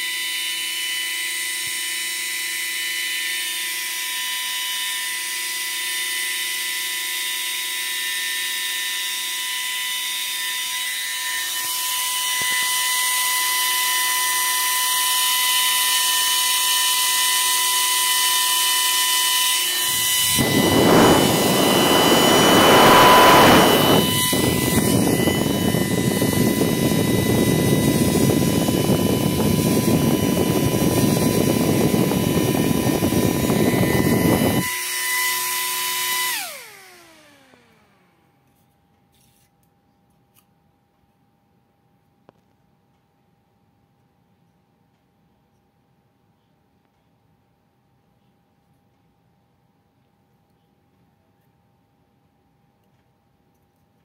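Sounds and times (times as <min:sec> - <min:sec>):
fan whining: 0:10.8 - 0:38.3
rush of air: 0:19.9 - 0:34.6.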